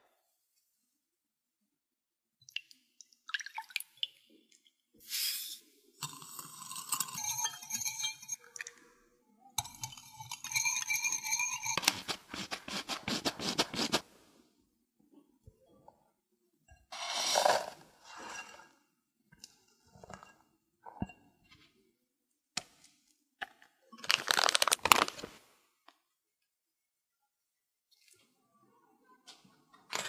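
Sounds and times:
whisk clinking in glass bowl: 6.6 - 8.5, 9.6 - 12.7
flour sifting through sieve: 10.5 - 14.2, 16.9 - 18.7.

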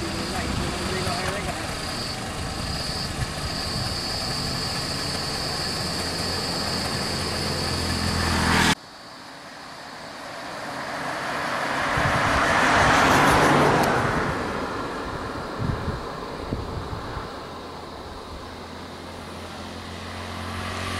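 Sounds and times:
vehicle passing close: 0.0 - 8.8, 9.5 - 20.9
vehicle engines idling: 0.0 - 20.9.

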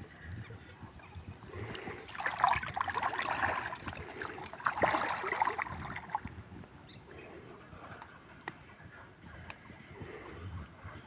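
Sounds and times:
pond water sloshing and splashing: 1.0 - 6.4.

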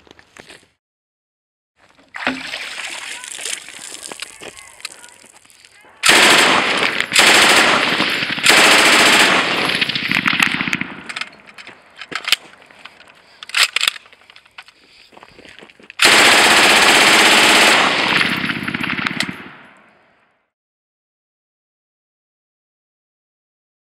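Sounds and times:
machine gun firing bursts: 6.0 - 11.5, 16.0 - 19.7.

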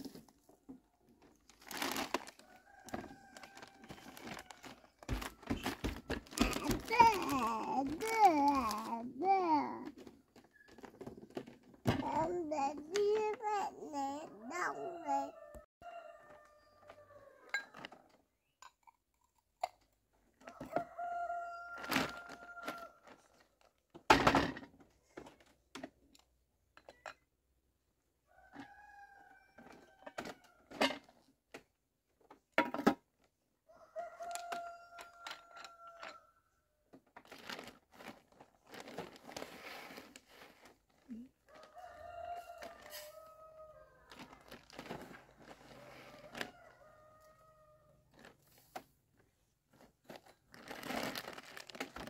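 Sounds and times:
rooster crowing: 20.6 - 22.9, 33.7 - 36.4, 41.5 - 44.2.

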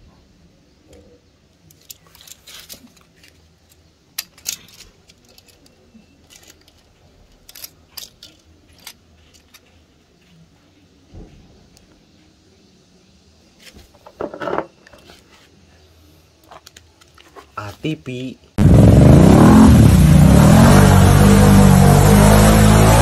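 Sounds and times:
toy vehicles clicking and clattering: 1.5 - 9.8.

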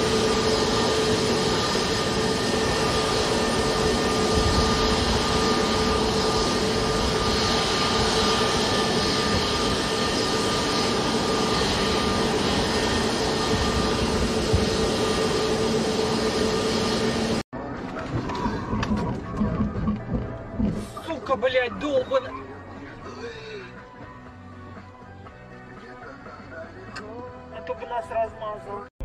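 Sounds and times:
jet engines rushing and whining: 0.0 - 23.1.

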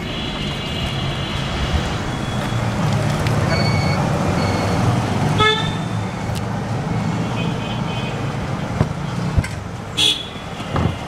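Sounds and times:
street traffic rumble: 0.0 - 11.0
brief pitched tone: 1.8 - 4.8.

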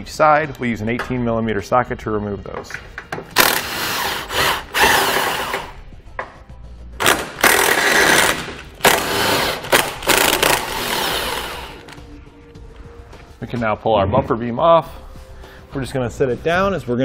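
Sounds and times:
impact wrench bursts: 3.3 - 5.8, 7.0 - 12.0.

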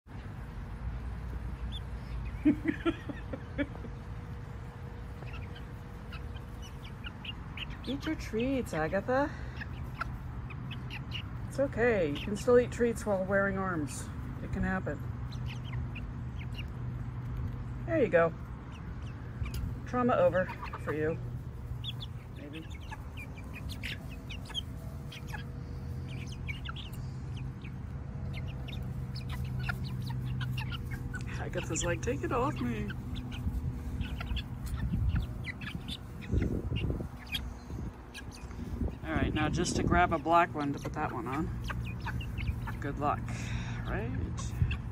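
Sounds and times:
steady low rumble: 0.1 - 44.9
young chickens clucking: 0.1 - 44.9.

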